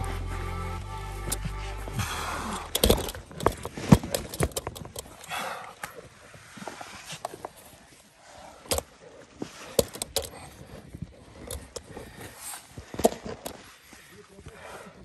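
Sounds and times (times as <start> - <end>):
sharp knocks and clicks: 2.7 - 5.1.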